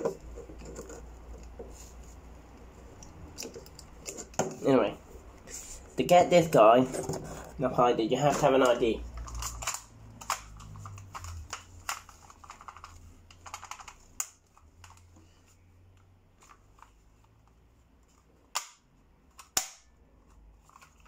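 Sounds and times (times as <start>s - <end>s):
sharp plastic snaps: 8.6s - 15.0s, 18.5s - 20.0s
plastic clicks and rattles: 8.6s - 15.1s.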